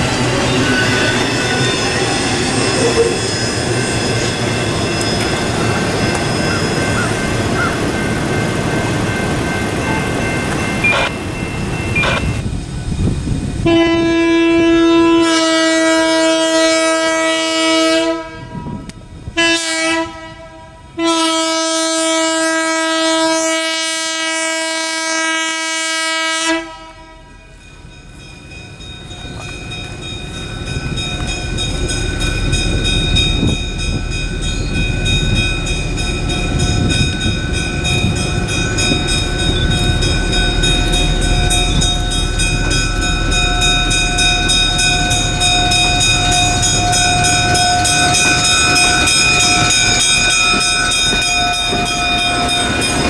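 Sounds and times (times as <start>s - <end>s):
train running noise: 0.0s - 53.0s
train air horn blasts: 13.6s - 27.4s.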